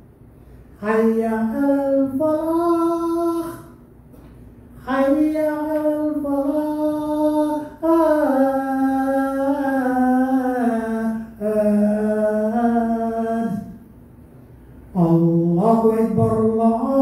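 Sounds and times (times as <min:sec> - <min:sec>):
call to prayer chanted: 0:15.0 - 0:17.0.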